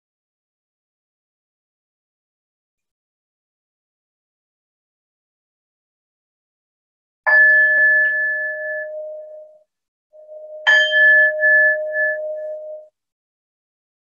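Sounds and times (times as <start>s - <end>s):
singing bowl ringing: 7.3s - 9.6s, 10.2s - 12.9s.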